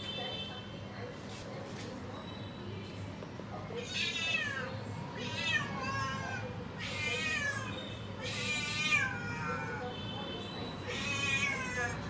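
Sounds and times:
cat meowing: 0:03.8 - 0:09.9, 0:10.8 - 0:12.0.

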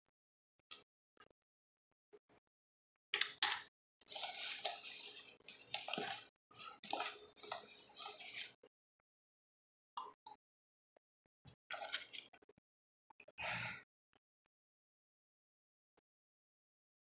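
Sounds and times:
spoon scraping corn starch: 0:04.0 - 0:08.6, 0:11.7 - 0:12.4.

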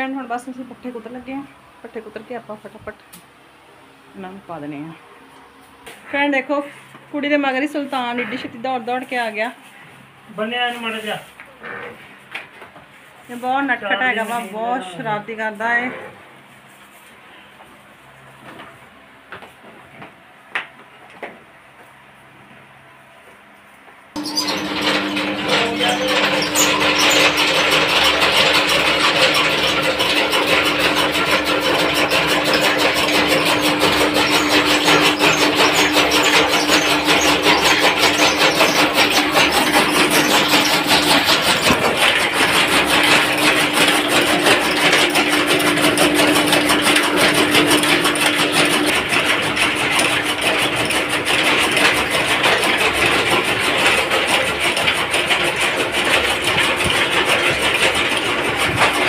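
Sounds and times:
blades chopping fodder: 0:24.2 - 0:54.5
chaff cutter machine hum: 0:24.2 - 0:59.0.

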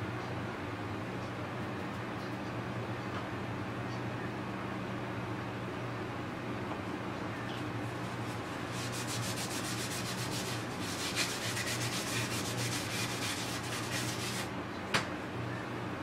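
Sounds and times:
abrasive pad rubbing: 0:07.9 - 0:14.5.

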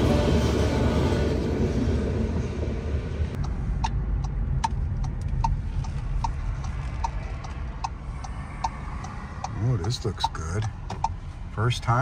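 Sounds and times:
car road rumble: 0:00.0 - 0:12.0
turn signal clicking: 0:03.4 - 0:12.0.

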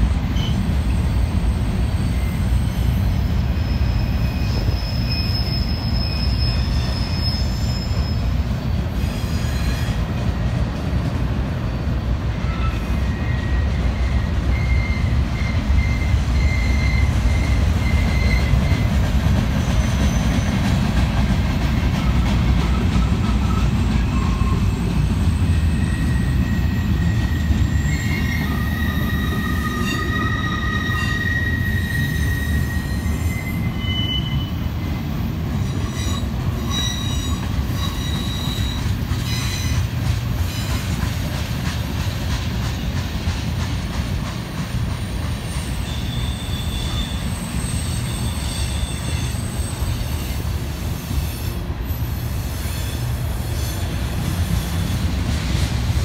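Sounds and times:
train wheels rumbling on rail: 0:00.0 - 0:56.0
high-pitched wheel squeals: 0:00.3 - 0:08.4, 0:12.4 - 0:18.9, 0:23.0 - 0:35.0, 0:35.7 - 0:39.8, 0:45.4 - 0:53.9.

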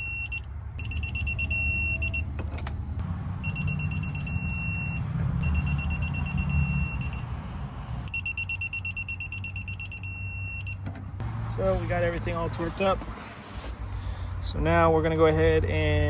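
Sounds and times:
rapid high-pitched beeps: 0:00.0 - 0:02.2, 0:03.4 - 0:07.2, 0:08.1 - 0:10.8
held beep tone: 0:00.0 - 0:02.3, 0:03.4 - 0:07.3, 0:08.1 - 0:10.8.

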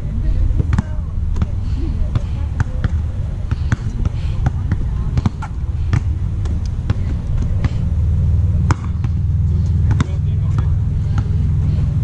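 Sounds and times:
steady low rumble: 0:00.0 - 0:12.0
basketball bouncing on hard court: 0:02.1 - 0:07.8, 0:08.6 - 0:11.4.

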